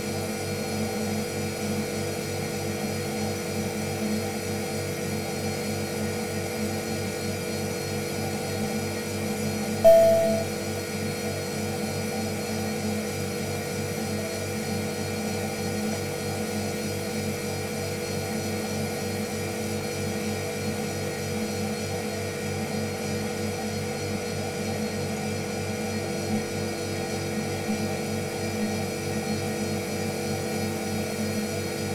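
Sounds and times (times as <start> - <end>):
short higher note: 9.9 - 10.6.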